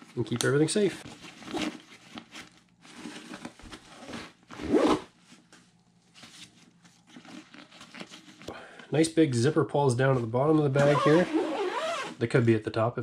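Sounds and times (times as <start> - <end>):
zipper being pulled: 4.0 - 5.1, 10.8 - 12.2.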